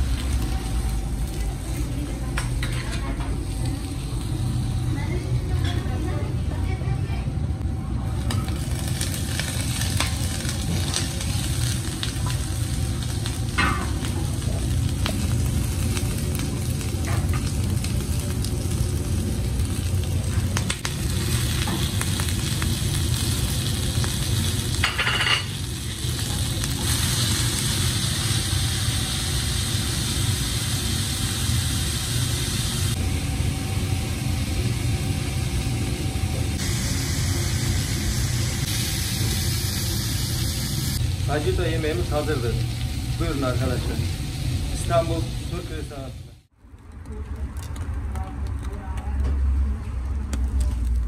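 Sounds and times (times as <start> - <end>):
food sizzling in a pan: 0.0 - 6.3, 8.2 - 46.5
low rumble: 0.0 - 21.8.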